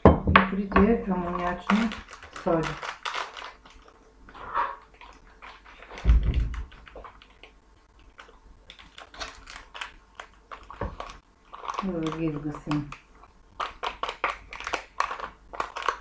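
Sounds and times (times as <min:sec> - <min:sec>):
paper sachets crinkling: 0:01.0 - 0:16.0.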